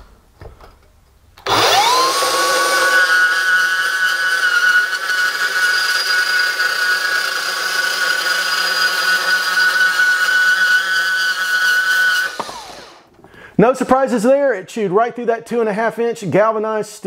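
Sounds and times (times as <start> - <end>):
band saw cutting metal tube: 1.4 - 13.1.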